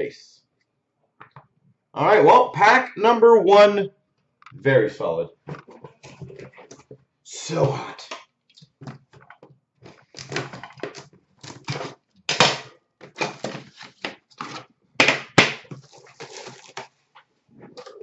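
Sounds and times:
plastic shrink wrap crinkling: 15.7 - 17.1.

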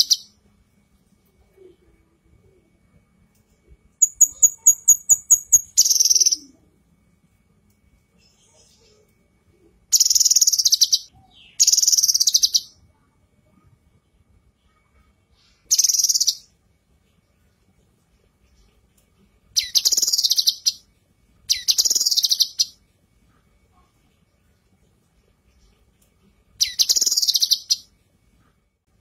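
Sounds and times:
bird chattering: 0.0 - 0.3, 4.0 - 6.6, 19.6 - 20.8, 21.5 - 22.7, 26.6 - 27.8.

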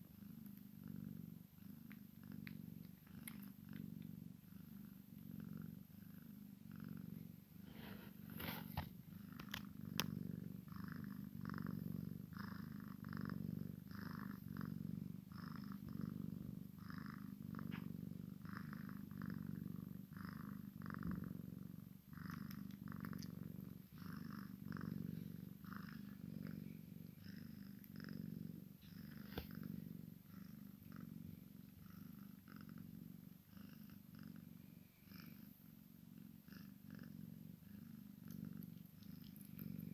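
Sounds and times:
cats purring: 0.0 - 39.9.

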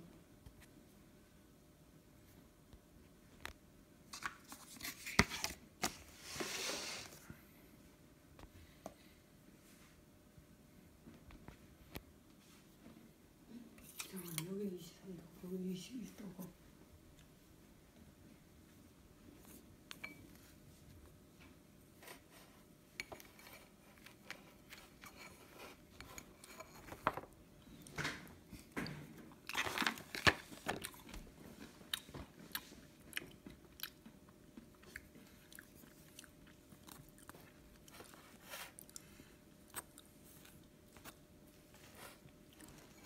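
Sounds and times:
chewing and crunching nuts: 30.8 - 41.3.

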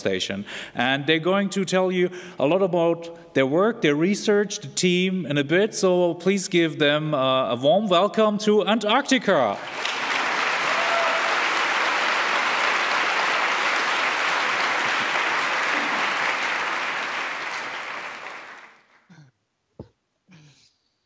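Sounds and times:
large audience applauding: 9.6 - 19.0.

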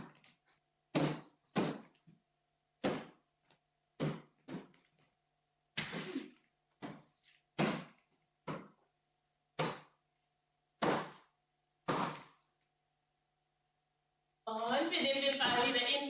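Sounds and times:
ball hit by hand echoing: 1.0 - 1.9, 2.8 - 3.2, 4.0 - 4.7, 7.6 - 8.7, 9.6 - 9.9, 10.8 - 12.4.

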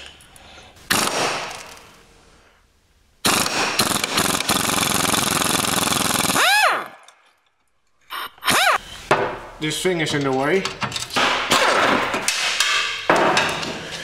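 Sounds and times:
wrench whine: 8.0 - 8.9.

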